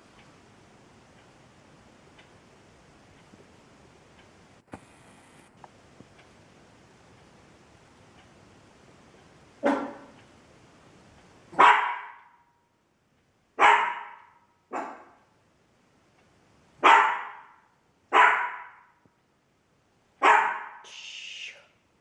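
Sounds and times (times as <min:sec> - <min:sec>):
dog barking: 0:09.6 - 0:10.1, 0:11.5 - 0:12.4, 0:13.6 - 0:15.2, 0:16.8 - 0:19.0, 0:20.2 - 0:20.9.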